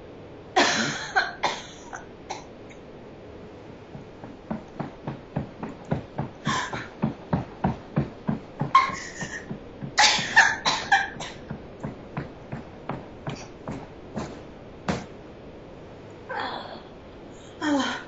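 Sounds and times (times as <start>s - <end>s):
rapid coughing heaves: 0.6s - 2.5s, 4.0s - 15.0s
woman coughing: 0.6s - 2.5s, 8.7s - 11.5s.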